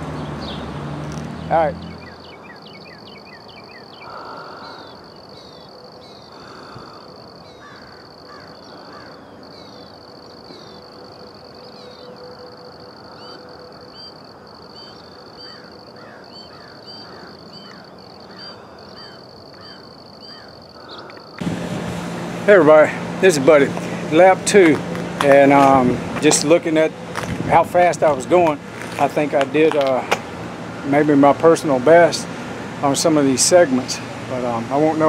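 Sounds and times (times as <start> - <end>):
birds chirping and whistling: 0.2 - 0.8, 1.4 - 10.9, 13.0 - 21.4
harsh caw-like bird calls: 2.0 - 10.0, 14.8 - 21.4
high-pitched insect buzz: 3.0 - 21.4.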